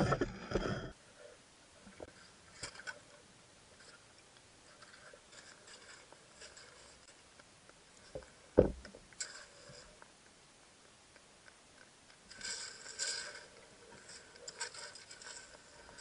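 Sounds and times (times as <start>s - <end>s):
soft clicks and ticks: 3.8s - 16.0s.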